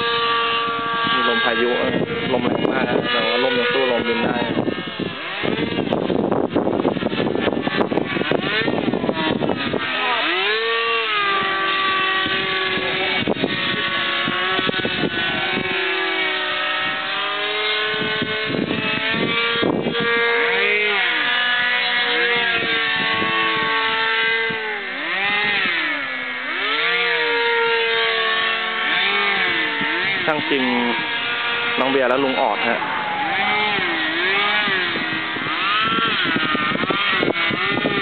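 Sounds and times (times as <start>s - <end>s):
small propeller motor droning: 0.0s - 38.0s
wind buffeting microphone: 0.0s - 38.0s.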